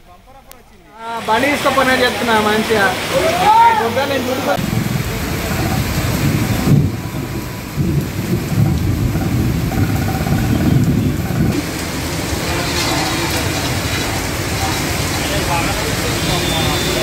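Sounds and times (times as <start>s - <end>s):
heavy rain pouring: 0.2s - 17.0s
deep rumble: 4.6s - 11.6s.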